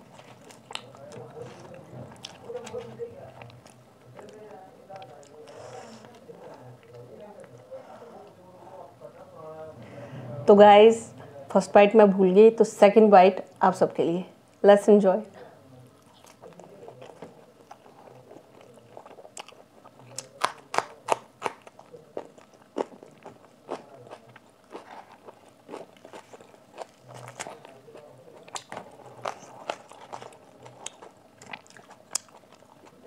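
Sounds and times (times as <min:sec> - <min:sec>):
chewing crisp food: 0:00.0 - 0:08.4, 0:15.8 - 0:33.0.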